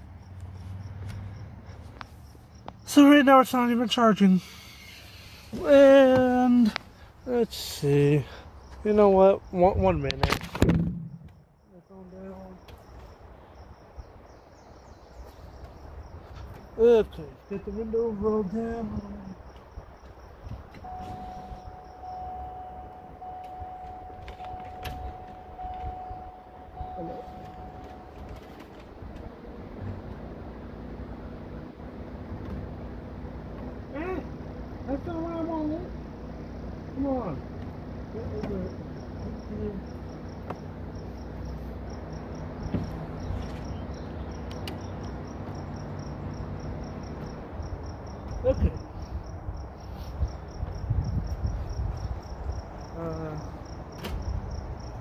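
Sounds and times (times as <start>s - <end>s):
crickets chirping: 0.0s - 55.0s
low rumble: 9.8s - 11.7s
low steady hum: 20.5s - 49.3s
electronic warning beep: 20.8s - 28.5s.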